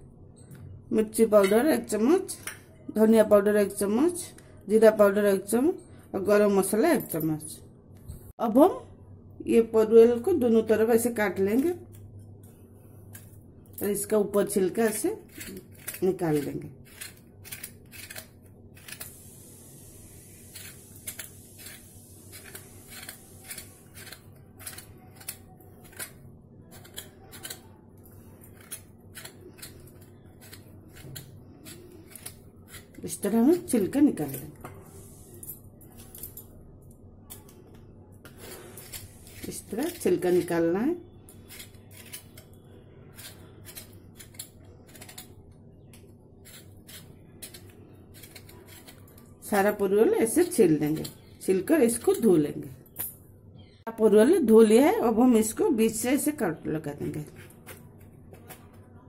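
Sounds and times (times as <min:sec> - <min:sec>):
knife scraping gourd skin: 0:14.7 - 0:19.3, 0:20.3 - 0:33.7, 0:38.3 - 0:40.6, 0:41.3 - 0:45.4, 0:46.4 - 0:49.2, 0:57.2 - 0:58.8.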